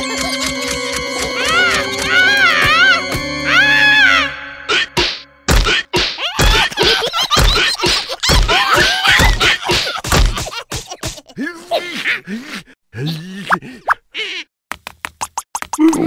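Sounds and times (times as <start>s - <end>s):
squeaky cries: 1.3s - 4.9s
cartoon whacks and thuds: 5.0s - 11.2s.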